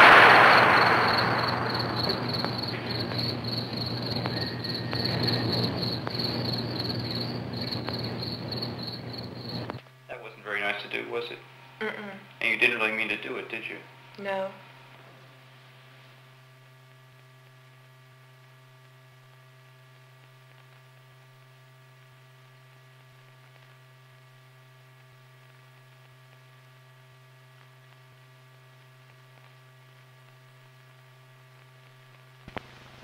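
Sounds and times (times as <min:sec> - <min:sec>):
faint hiss: 0:00.0 - 0:04.4
electrical mains hum: 0:00.0 - 0:33.0.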